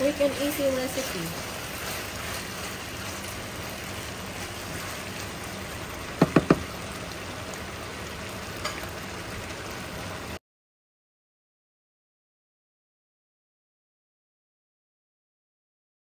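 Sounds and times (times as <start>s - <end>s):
stir-fry sizzling in a pan: 0.0s - 10.4s
sharp knocks: 6.2s - 6.7s.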